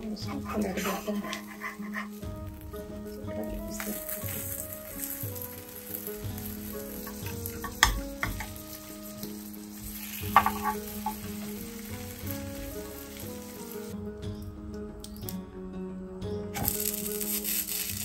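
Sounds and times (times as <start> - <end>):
steel spatula scraping griddle: 0.2 - 2.3, 4.1 - 11.9
butter sizzling on griddle: 0.3 - 14.0, 16.6 - 18.0.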